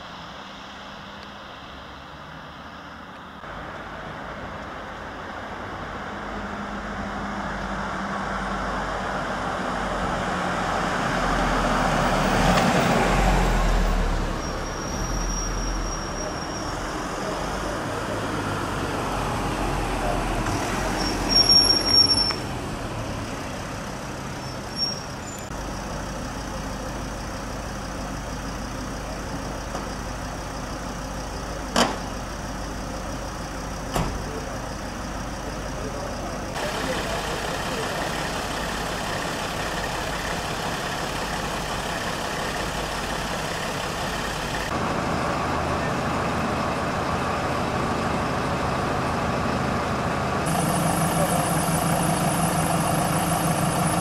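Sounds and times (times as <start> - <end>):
vehicle engines running: 0.0 - 54.0
brief high squeals: 14.3 - 16.9, 20.9 - 22.4, 24.5 - 25.5.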